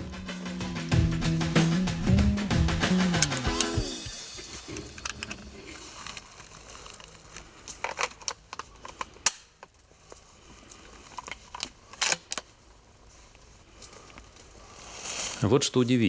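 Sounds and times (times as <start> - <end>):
rustling clothing and dry leaves: 3.9 - 16.0
rifle clicks and knocks: 4.8 - 5.4.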